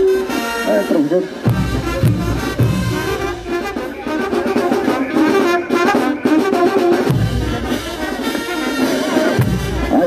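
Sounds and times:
street band playing a march: 0.0 - 10.0
heavy bass drum beat: 1.4 - 10.0.

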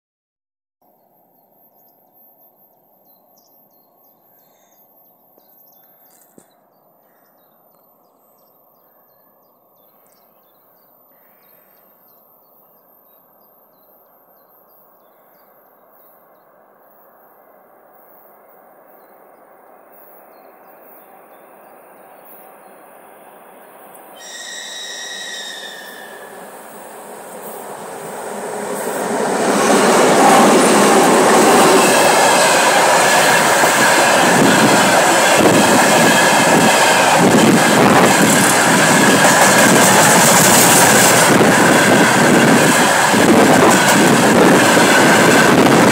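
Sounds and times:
birds chirping: 17.9 - 33.0
diesel locomotive rumbling: 20.5 - 45.9
multi-toned locomotive horn: 24.2 - 26.5.

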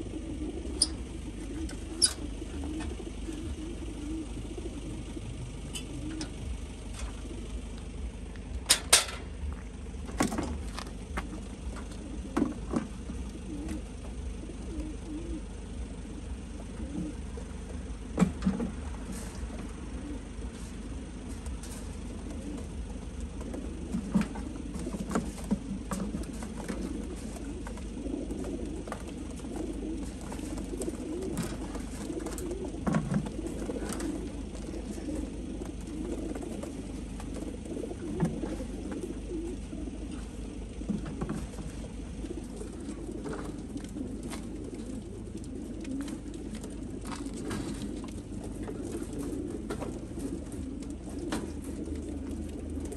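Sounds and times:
pigeons cooing: 0.0 - 52.9
metal crates clicking: 8.6 - 9.4.

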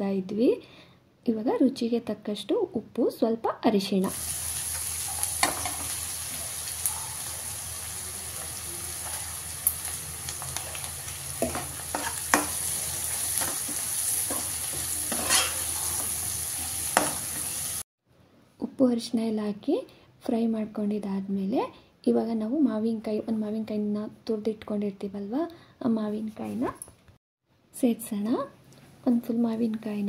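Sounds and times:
onions sizzling in oil: 4.0 - 17.9
spoon scraping and knocking pan: 4.6 - 7.6, 8.3 - 17.7.

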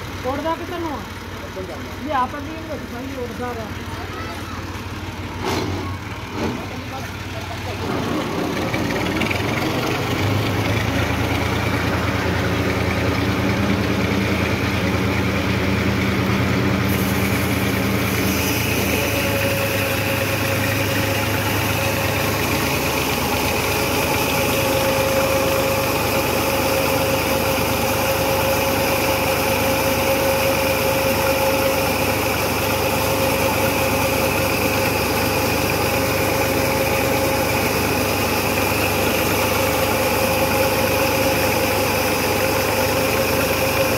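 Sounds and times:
tractor engine running: 0.0 - 43.9
whine of spinning machinery: 0.0 - 43.9.

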